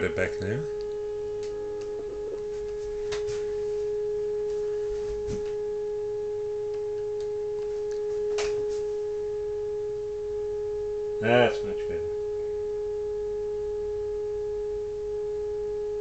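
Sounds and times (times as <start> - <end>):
steady radio beat tone: 0.0 - 5.2.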